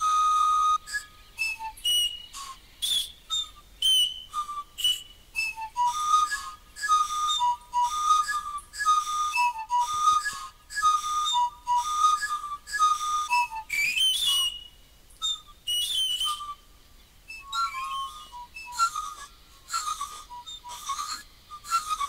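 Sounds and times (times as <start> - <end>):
shrill rising panpipe blasts: 0.0 - 16.7, 17.3 - 22.0.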